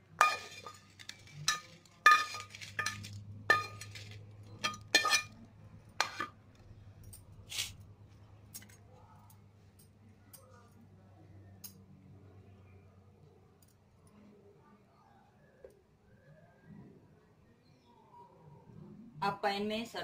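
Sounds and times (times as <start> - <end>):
chillies clattering into glass bowl: 0.2 - 5.4
metal spatula clinking on pan: 0.2 - 5.4, 6.0 - 6.3.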